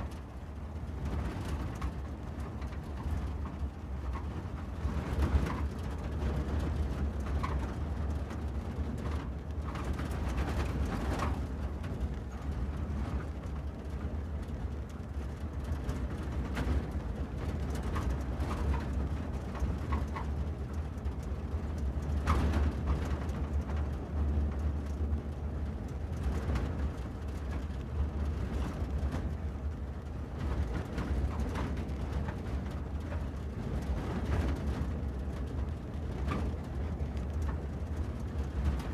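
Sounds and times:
car engine and tyres rumbling: 0:00.0 - 0:38.9.

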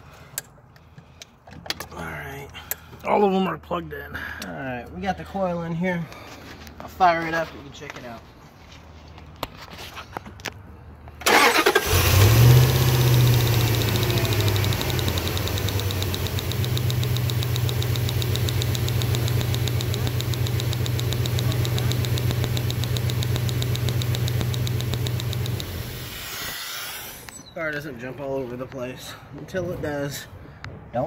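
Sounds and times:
car engine starting and idling: 0:11.2 - 0:26.2
fast spark ticking: 0:12.8 - 0:25.9.

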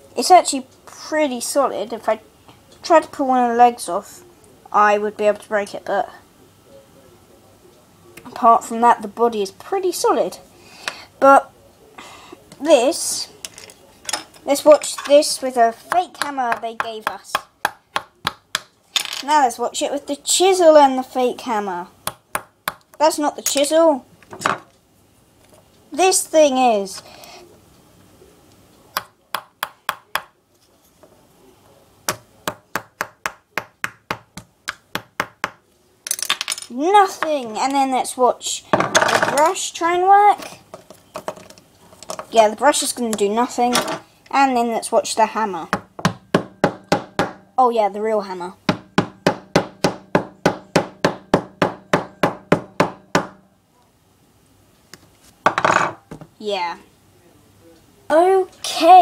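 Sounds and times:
hammer striking plaster block: 0:45.8 - 0:47.4, 0:48.7 - 0:53.4.

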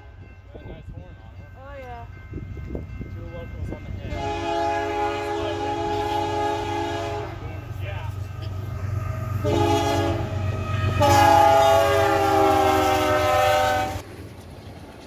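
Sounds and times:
locomotive rumbling: 0:00.0 - 0:15.0
locomotive air horn chord: 0:04.1 - 0:07.6, 0:09.1 - 0:14.0.

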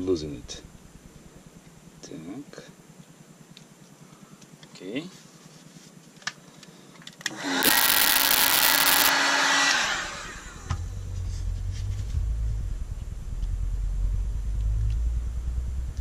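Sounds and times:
low steady rumble: 0:00.0 - 0:04.5, 0:10.3 - 0:16.0
heat gun motor hum and whine: 0:07.3 - 0:10.8.

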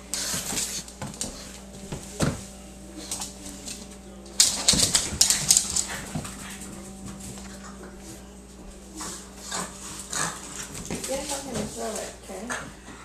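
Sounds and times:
dog claws clicking on hard floor: 0:04.4 - 0:06.7.

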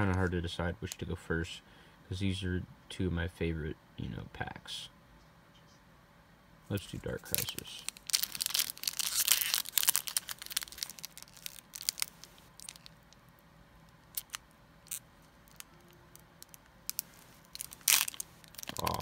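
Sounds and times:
foil wrapper tearing and crinkling: 0:07.1 - 0:13.0, 0:14.1 - 0:15.7, 0:16.4 - 0:19.0.

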